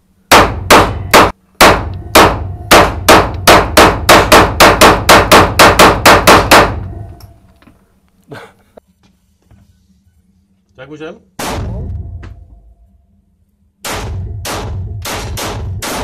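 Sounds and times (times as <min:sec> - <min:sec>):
pistol shots echoing indoors: 0:00.3 - 0:06.9, 0:13.8 - 0:16.0.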